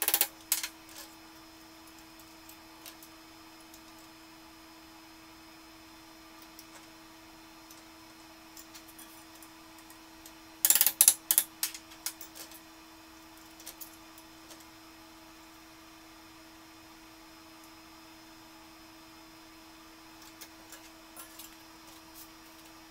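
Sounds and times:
metal clicks and clacks in vise: 0:10.6 - 0:12.3.

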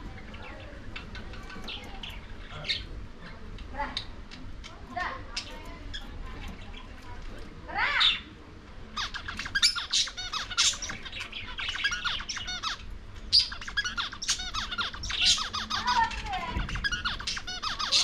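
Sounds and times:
budgerigars chattering: 0:00.2 - 0:03.0, 0:07.9 - 0:18.0.

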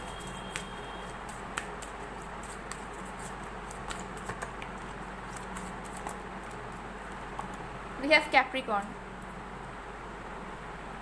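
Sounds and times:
cards clicking and tapping: 0:01.3 - 0:02.9, 0:03.7 - 0:06.6.

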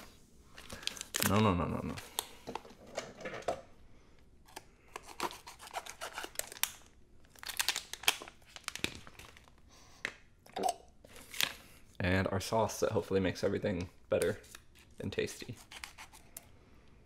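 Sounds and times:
plastic crinkling: 0:00.0 - 0:02.3, 0:05.2 - 0:09.7.

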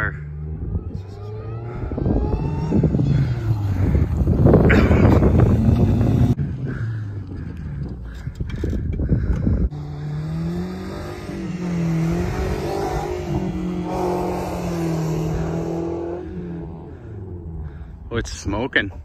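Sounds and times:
car engine revving hard: 0:00.4 - 0:06.9, 0:09.7 - 0:17.9.

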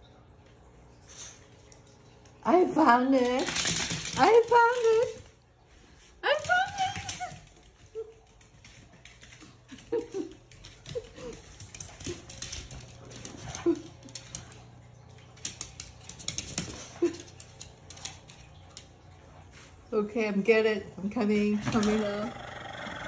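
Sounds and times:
dog claws clicking on hard floor: 0:01.7 - 0:05.4, 0:06.3 - 0:19.0.

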